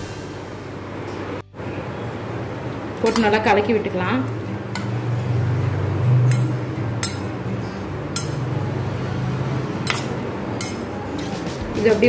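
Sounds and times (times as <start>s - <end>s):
spoon clinking against steel bowl: 3.0s - 3.5s, 6.2s - 7.4s, 8.1s - 8.5s, 9.8s - 11.0s.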